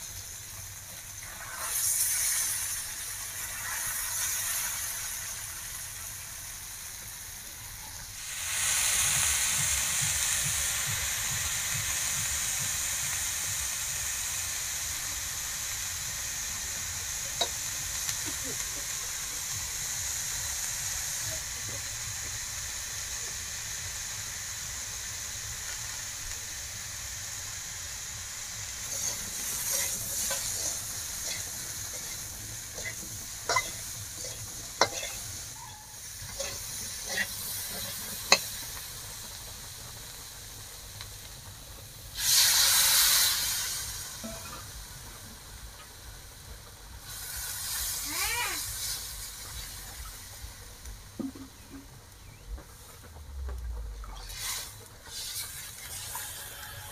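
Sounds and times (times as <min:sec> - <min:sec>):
potatoes sizzling in hot oil: 0:00.0 - 0:56.9
water hissing in hot pan: 0:00.0 - 0:56.9
metal spatula scraping pan: 0:32.8 - 0:38.4, 0:54.2 - 0:56.9.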